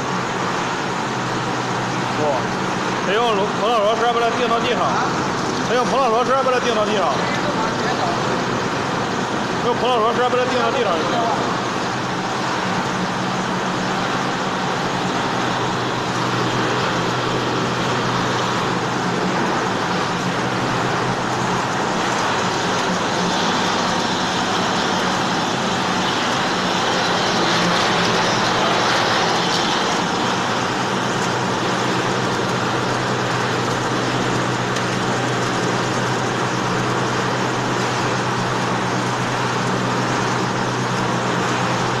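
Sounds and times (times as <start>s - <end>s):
conveyor machinery din: 0.0s - 42.0s.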